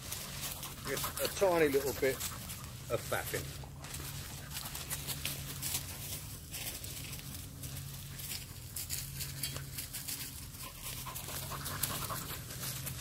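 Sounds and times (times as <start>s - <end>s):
dog panting: 0.2s - 3.5s, 10.2s - 13.0s.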